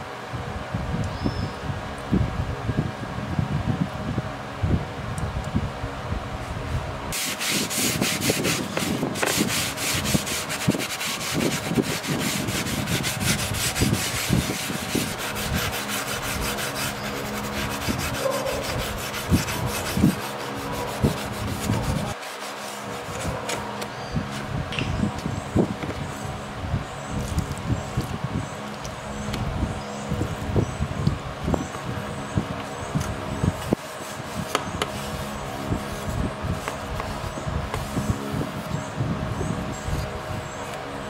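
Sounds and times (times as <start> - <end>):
sponge scrubbing wet metal blade: 7.2 - 23.4.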